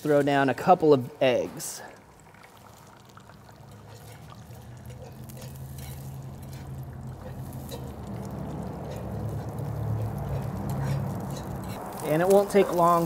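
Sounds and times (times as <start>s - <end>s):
eggs sizzling in a skillet: 0.0s - 13.0s
fork clicking and scraping: 3.7s - 13.0s.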